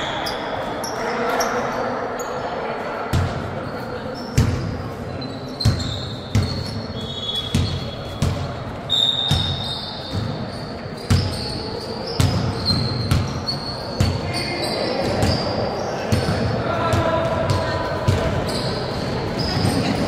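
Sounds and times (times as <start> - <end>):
shoes squeaking on court: 3.6 - 16.5, 17.5 - 20.0
basketball bouncing on gym floor: 5.6 - 6.8, 7.4 - 8.6, 9.2 - 10.4, 11.1 - 11.5, 12.1 - 14.3, 16.1 - 20.0.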